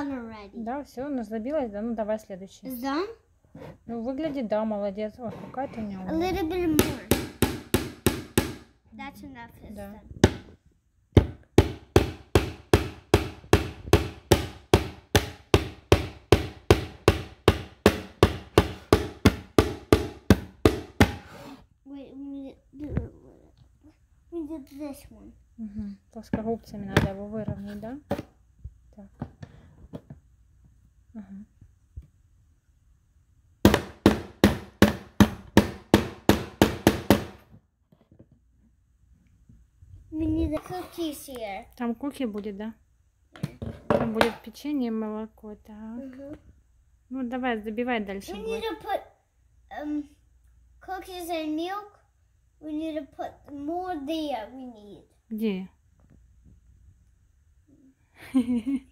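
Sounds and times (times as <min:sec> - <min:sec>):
hammer driving nail into wood: 0:06.8 - 0:08.7, 0:11.2 - 0:21.3, 0:33.6 - 0:37.6.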